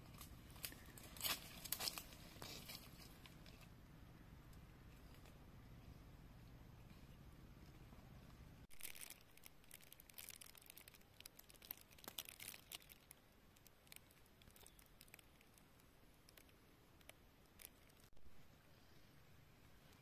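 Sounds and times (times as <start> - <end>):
dry leaves rustling and crackling: 0.0 - 3.7, 8.7 - 18.1.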